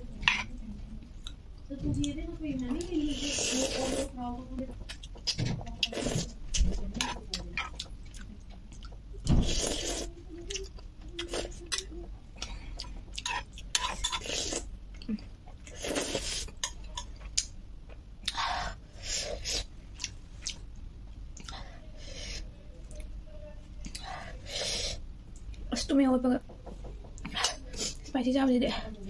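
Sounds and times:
person chewing: 0:07.0 - 0:21.6.

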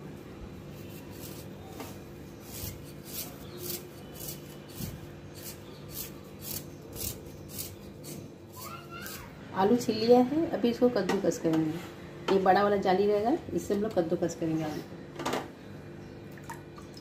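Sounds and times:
peeler scraping potato skin: 0:00.7 - 0:09.3.

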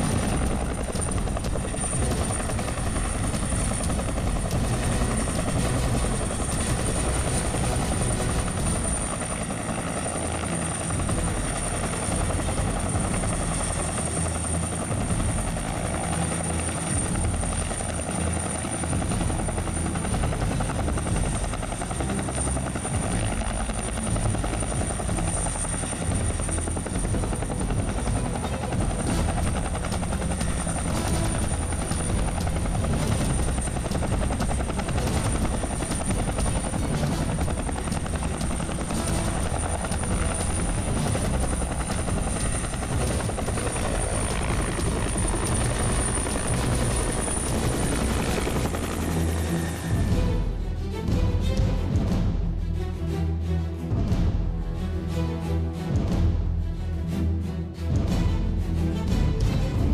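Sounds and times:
helicopter rotor beating: 0:00.0 - 0:53.1
high turbine whine: 0:00.0 - 0:53.1.

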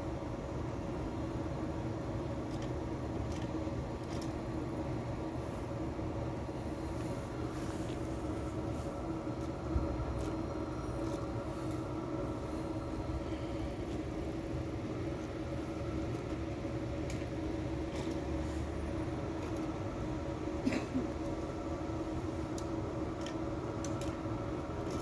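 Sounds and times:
electric train humming: 0:04.5 - 0:25.0.

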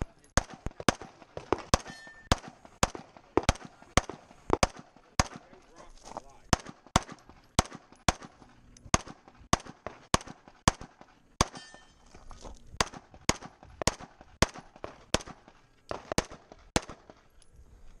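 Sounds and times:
pistol shots: 0:00.2 - 0:05.8, 0:06.4 - 0:12.0, 0:12.8 - 0:17.3.

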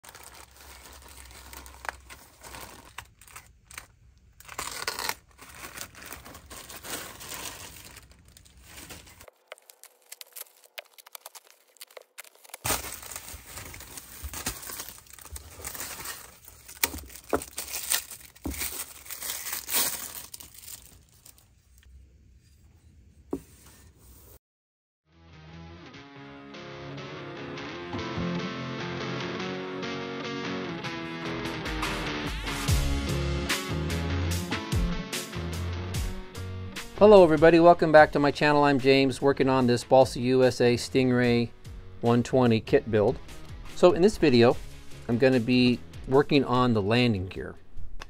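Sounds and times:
plastic bag crinkling and tearing: 0:00.0 - 0:21.9.

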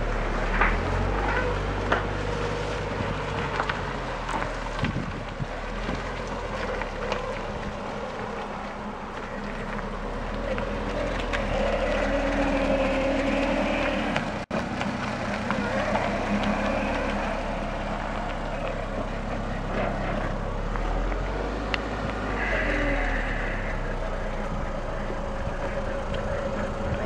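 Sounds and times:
car engine running: 0:00.0 - 0:27.0.

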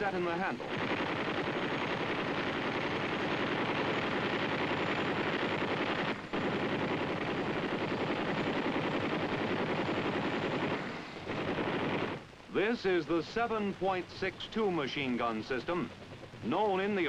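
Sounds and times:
rapid machine-gun fire: 0:00.0 - 0:12.3.

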